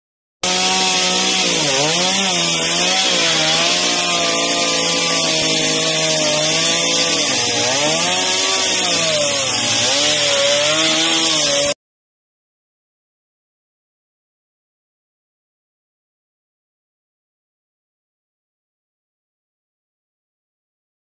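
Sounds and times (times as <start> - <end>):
chainsaw cutting wood: 0.4 - 11.8.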